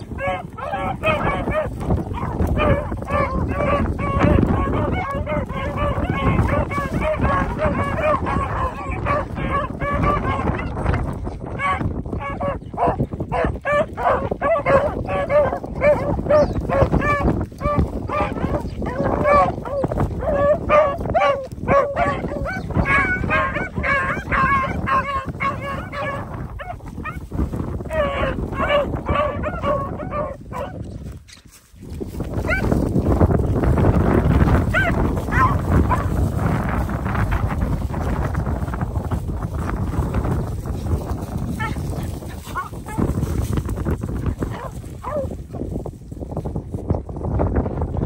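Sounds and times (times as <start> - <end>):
hounds baying: 0.0 - 30.9, 32.4 - 33.1, 33.7 - 37.4, 41.5 - 43.4, 44.4 - 45.3.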